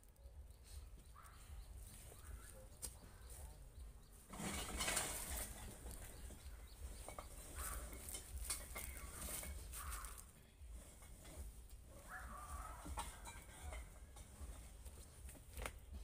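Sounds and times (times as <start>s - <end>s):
debris knocking and scraping: 4.2s - 16.0s.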